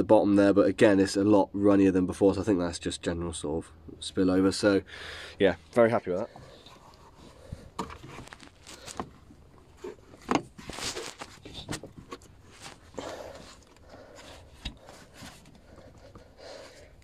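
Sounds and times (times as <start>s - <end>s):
parts being handled: 6.3s - 17.0s.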